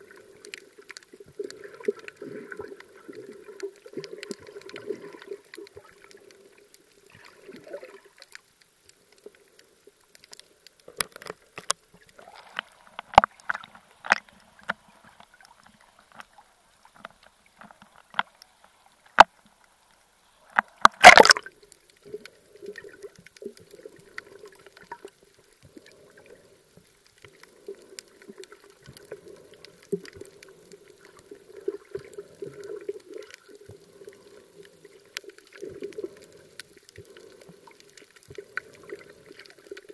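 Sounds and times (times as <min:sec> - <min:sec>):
water slaps and clicks: 0:10.1 - 0:16.3, 0:20.5 - 0:21.5
muffled underwater gurgling: 0:20.8 - 0:21.5
loud water splash: 0:20.9 - 0:21.5.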